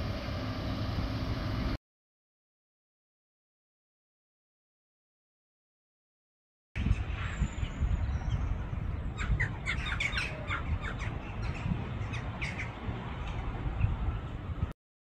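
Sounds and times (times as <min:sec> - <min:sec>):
birds squawking: 0:06.8 - 0:13.4
steady low rumble: 0:06.8 - 0:14.7.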